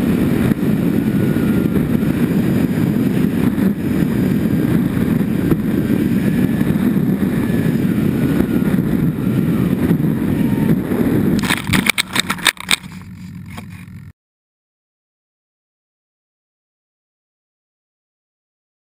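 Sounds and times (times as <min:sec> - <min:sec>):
wind rush: 0:00.0 - 0:14.0
model plane motor noise: 0:00.0 - 0:14.1.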